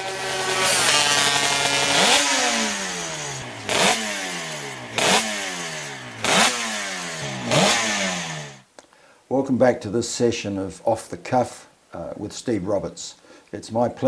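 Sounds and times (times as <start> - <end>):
motorcycle engine revving: 0.0 - 8.6.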